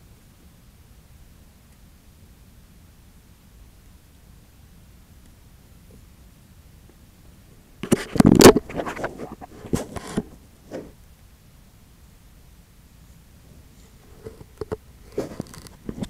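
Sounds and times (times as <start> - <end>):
camera handling knocks and scrapes: 7.8 - 10.9.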